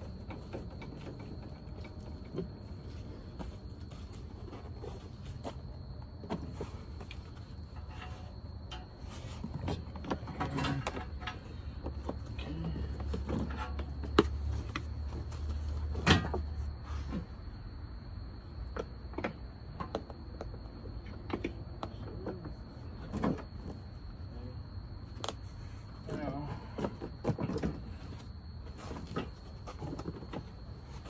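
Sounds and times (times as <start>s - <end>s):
car parts clicking and knocking: 0.0s - 17.3s, 18.6s - 23.9s.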